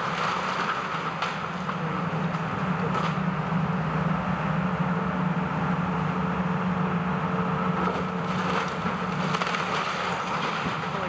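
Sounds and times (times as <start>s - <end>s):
debris cracking and crunching: 0.0s - 3.2s, 7.8s - 11.0s
excavator diesel engine running: 0.0s - 11.0s.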